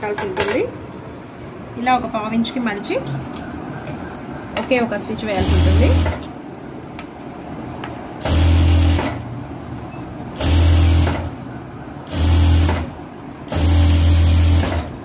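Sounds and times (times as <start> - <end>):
sewing machine running: 5.4 - 6.2, 8.2 - 9.2, 10.4 - 11.3, 12.1 - 15.0.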